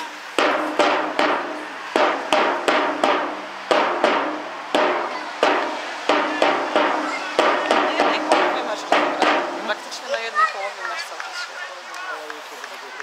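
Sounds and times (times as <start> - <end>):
sharp ringing percussive strikes: 0.4 - 9.7.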